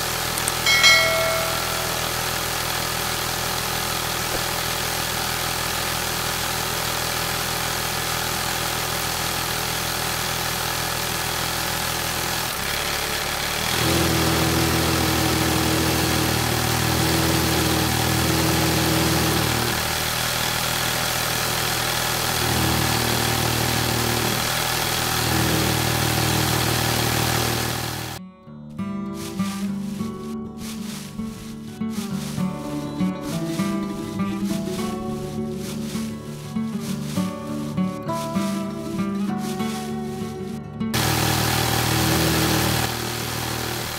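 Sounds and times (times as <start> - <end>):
small electric motor humming: 0.0 - 28.2, 41.0 - 43.9.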